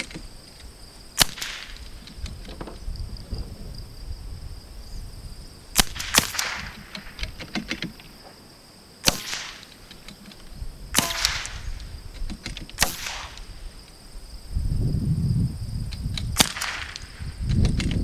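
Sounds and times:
rifle shots with echo: 1.2 - 1.8, 5.8 - 7.2, 9.0 - 9.7, 10.9 - 11.8, 12.8 - 13.6, 16.4 - 17.2.

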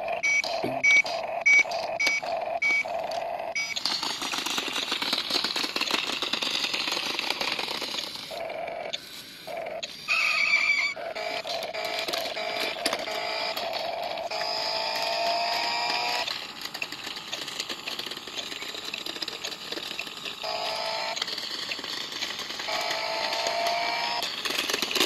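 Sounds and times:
electronic toy beeps: 0.1 - 4.0
harsh crackling noise: 2.8 - 25.0.

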